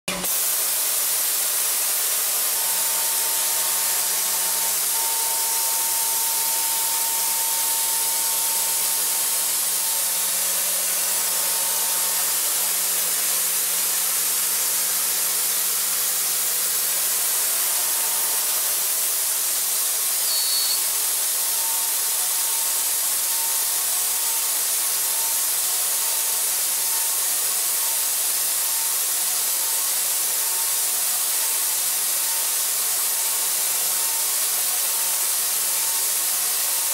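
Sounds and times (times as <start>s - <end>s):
milling machine cutting steel: 0.1s - 36.9s
faint steady whine: 2.4s - 13.4s
high-pitched chirp: 20.2s - 20.8s.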